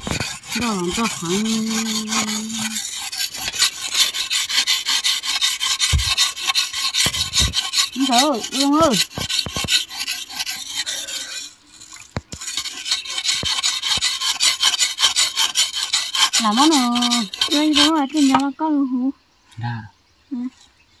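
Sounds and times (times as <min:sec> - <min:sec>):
rhythmic rasping scraping strokes: 0:00.0 - 0:18.6.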